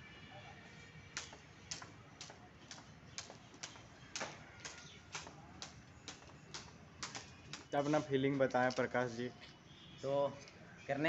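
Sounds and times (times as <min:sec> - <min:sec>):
skipping rope clacking on tiles: 0:01.2 - 0:07.7.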